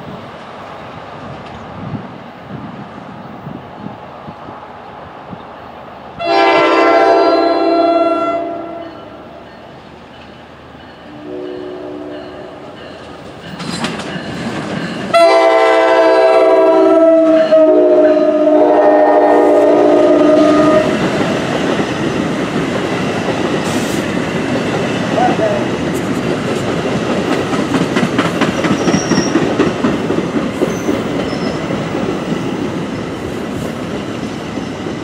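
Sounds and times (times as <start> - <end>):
train horn blasts: 6.2 - 9.2, 11.0 - 12.7, 15.1 - 21.0
train wheels clacking over rails: 8.8 - 18.2, 19.6 - 35.0.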